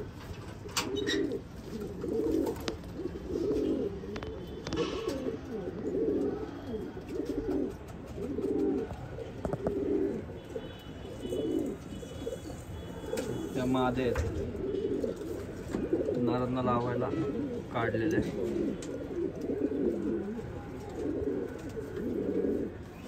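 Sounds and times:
pigeons cooing: 0.0 - 23.0.

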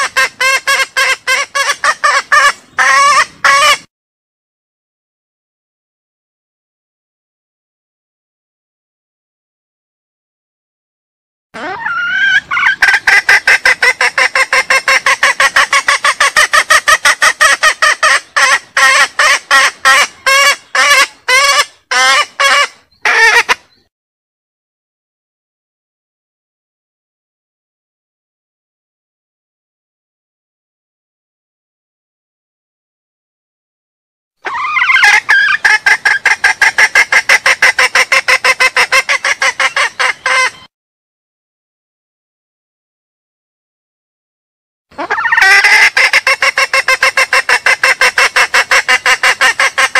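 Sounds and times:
hen cackling call: 0.0 - 3.9, 11.6 - 23.7, 34.4 - 40.7, 44.9 - 49.9.

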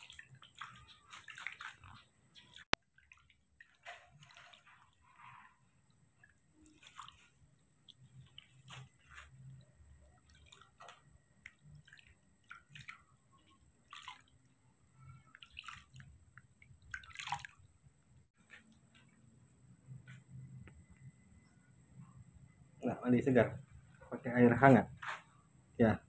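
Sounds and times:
water dripping and splashing: 0.0 - 18.2.

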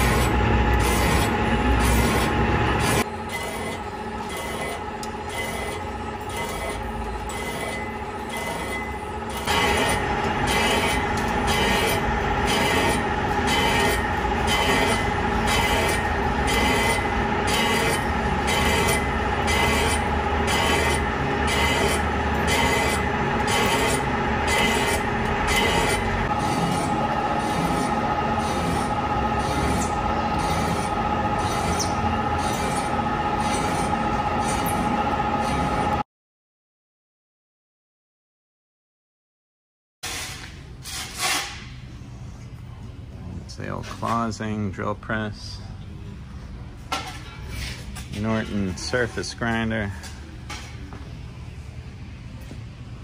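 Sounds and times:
boring bar cutting steel squealing: 0.0 - 36.0.

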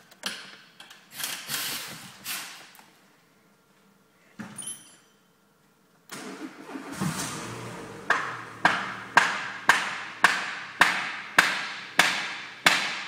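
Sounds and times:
car engine humming: 6.1 - 12.0.

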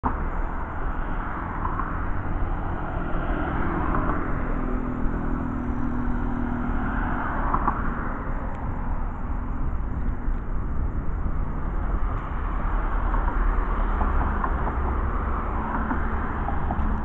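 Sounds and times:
faint engine hum: 0.0 - 17.0
tyres rumbling on road: 0.0 - 17.0.

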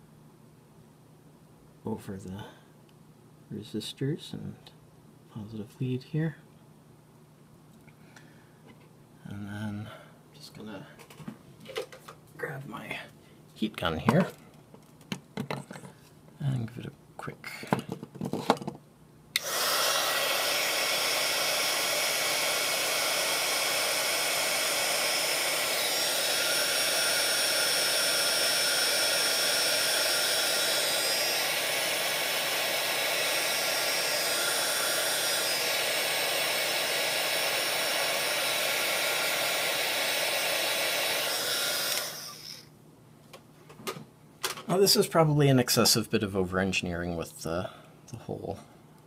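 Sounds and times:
heat gun blowing: 19.4 - 42.7.

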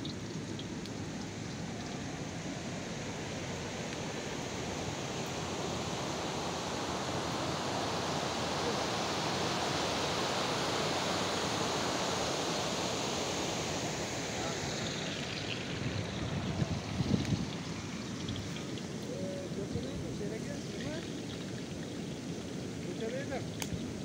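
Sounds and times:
river water rushing over rocks: 0.0 - 16.6.

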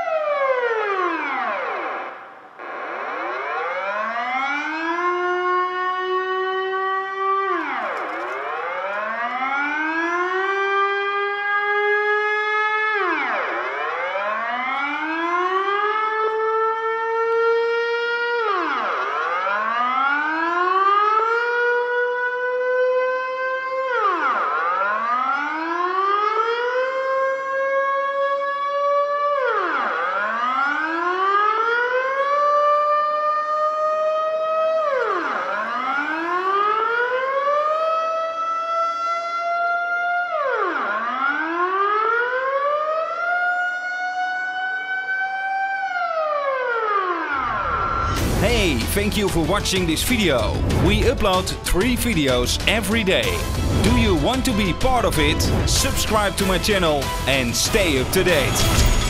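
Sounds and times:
air-raid siren wailing: 0.0 - 49.8, 53.1 - 59.0.

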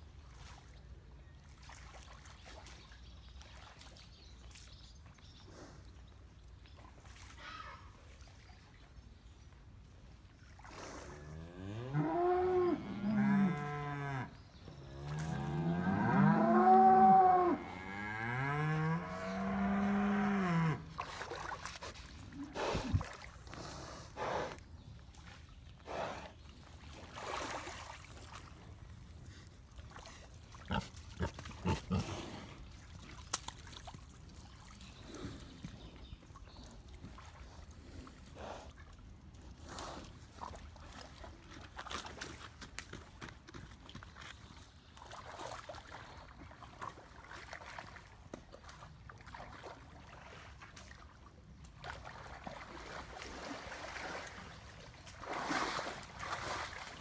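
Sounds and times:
splashes of mud and water: 0.2 - 5.2, 18.9 - 23.6, 26.6 - 35.6, 36.6 - 57.0.

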